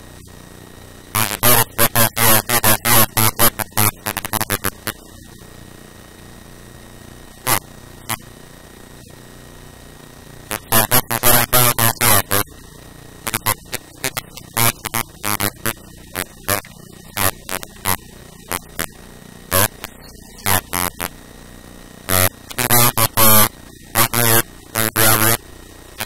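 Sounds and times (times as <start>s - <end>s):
mains hum and hiss: 0.0s - 26.0s
person talking: 10.5s - 12.5s, 22.5s - 25.4s.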